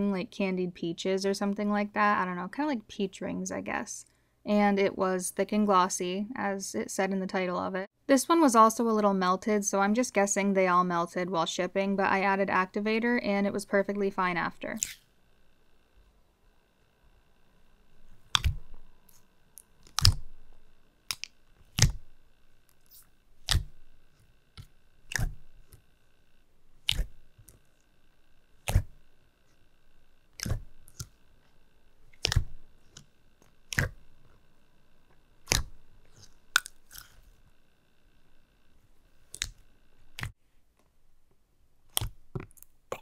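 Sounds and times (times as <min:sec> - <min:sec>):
wet slime popping: 0:18.2 - 0:18.9, 0:19.6 - 0:20.4, 0:21.1 - 0:22.2, 0:22.9 - 0:23.9, 0:25.0 - 0:25.8, 0:26.8 - 0:27.3, 0:28.6 - 0:29.0, 0:30.4 - 0:31.1, 0:32.1 - 0:33.1, 0:33.7 - 0:34.1, 0:35.4 - 0:37.2, 0:39.2 - 0:40.3, 0:41.9 - 0:43.0.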